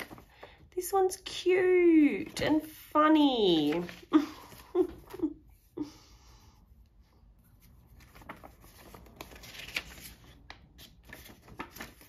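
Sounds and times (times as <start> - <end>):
paper cards rustling: 0.0 - 0.6, 3.5 - 5.2, 7.5 - 12.0.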